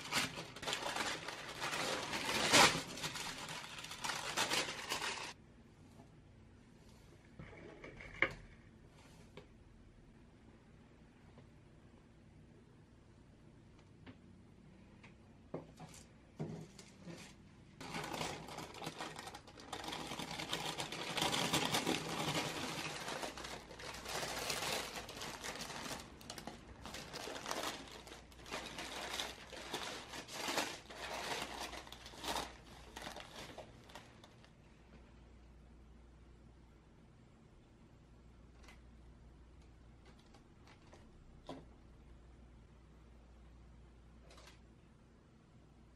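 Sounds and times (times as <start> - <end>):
baking paper rustling and crinkling: 0.0 - 5.4, 16.7 - 34.5.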